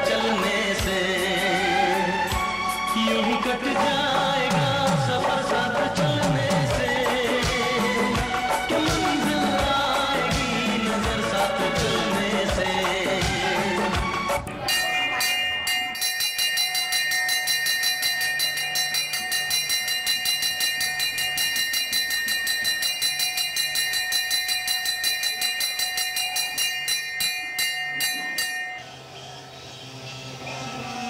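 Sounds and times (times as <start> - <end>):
electric bell ringing: 14.7 - 29.7.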